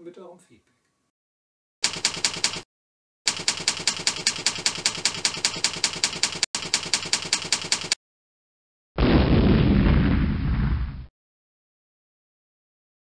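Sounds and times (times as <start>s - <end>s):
typewriter keystroke clacks: 1.8s - 2.7s, 3.3s - 8.0s.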